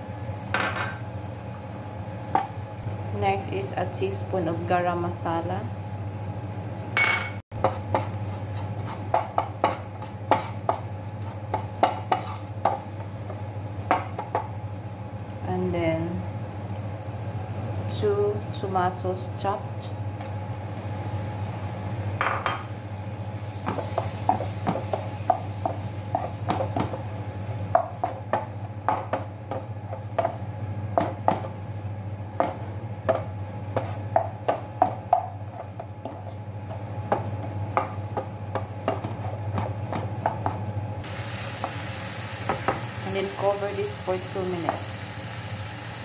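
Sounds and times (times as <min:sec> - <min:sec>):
steady low hum: 0:00.0 - 0:46.0
spatula scraping frying pan: 0:07.6 - 0:12.5, 0:35.4 - 0:36.8.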